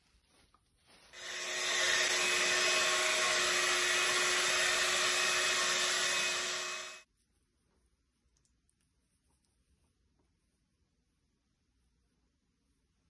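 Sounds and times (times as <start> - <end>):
hair dryer blowing with whine: 1.2 - 7.1.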